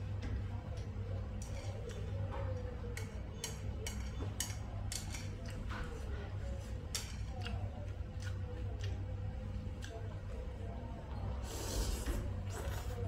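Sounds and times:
steady low hum: 0.0s - 13.0s
chopsticks clicking on bowl: 2.9s - 5.6s
chewing: 7.0s - 10.2s.

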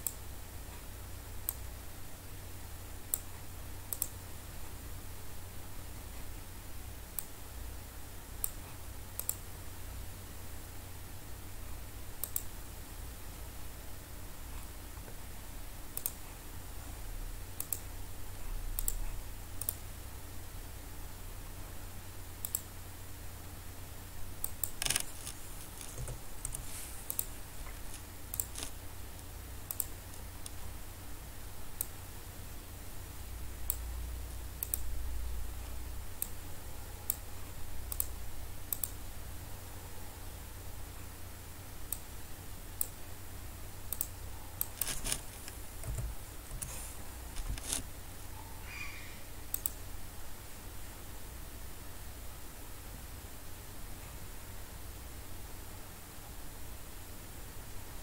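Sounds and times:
low steady hum: 0.0s - 58.0s
mouse and keyboard clicks: 3.9s - 4.2s, 9.2s - 9.4s, 12.2s - 12.5s, 16.0s - 16.2s, 17.6s - 17.8s, 24.4s - 28.8s, 29.7s - 30.6s, 38.7s - 39.0s, 43.9s - 47.9s, 49.5s - 49.8s.

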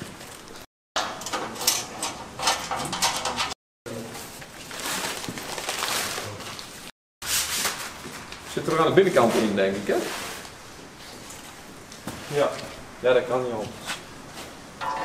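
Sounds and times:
sheet metal panels clicking and scraping: 1.0s - 3.6s, 14.8s - 15.0s.

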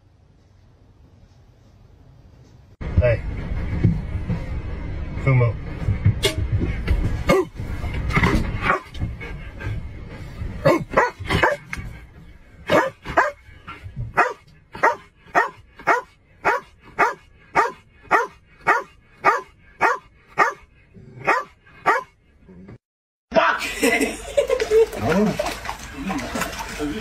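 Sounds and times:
dog barking: 8.6s - 8.9s, 10.6s - 11.7s, 12.7s - 13.4s, 14.2s - 22.1s.

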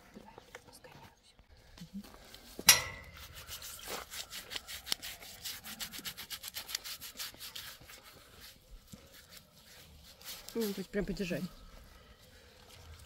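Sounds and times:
gauze pad rubbing horse hair: 3.2s - 11.8s.

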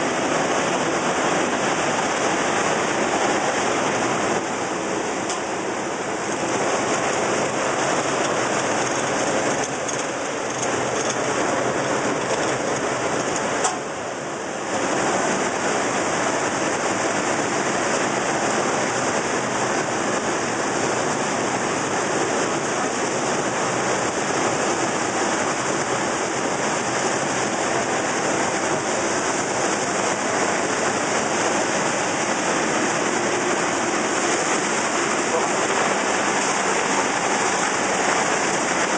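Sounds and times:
production line machinery running: 0.0s - 38.9s.

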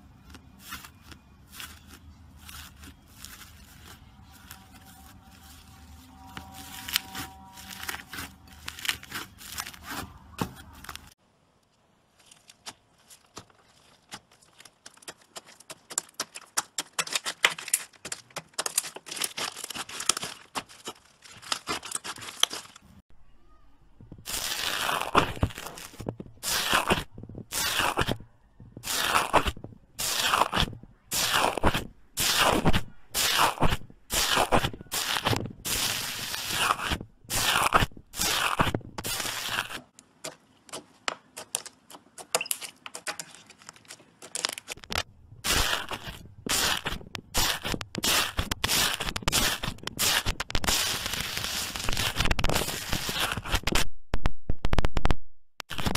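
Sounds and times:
metal tool crunching slime: 0.2s - 11.2s, 14.5s - 22.9s, 24.2s - 28.2s, 28.8s - 40.0s, 41.4s - 53.8s
slime squeezed crackling and popping: 28.8s - 39.8s.

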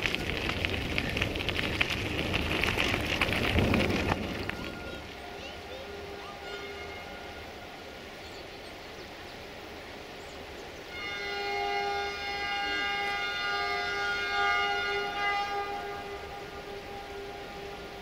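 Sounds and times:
locomotive horn blast: 4.0s - 8.2s, 10.9s - 18.0s.

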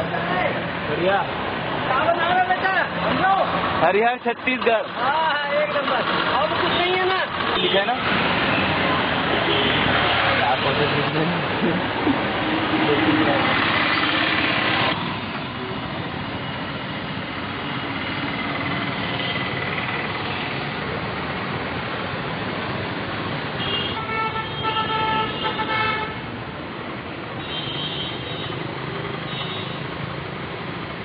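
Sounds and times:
road traffic noise: 0.0s - 31.0s
vehicle horns honking: 9.4s - 10.2s, 23.6s - 26.3s, 27.4s - 29.9s.

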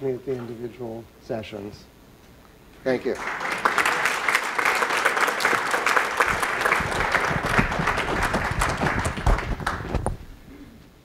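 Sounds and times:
audience applauding: 3.2s - 10.2s.

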